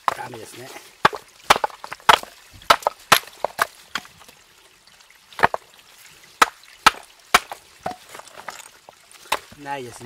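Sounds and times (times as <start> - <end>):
hammer cracking rocks: 1.0 - 4.1, 5.4 - 5.6, 6.4 - 9.7.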